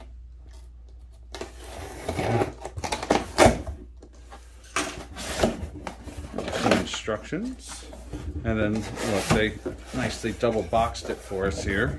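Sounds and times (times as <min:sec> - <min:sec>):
cardboard flaps scraping and rustling: 0:04.3 - 0:11.9.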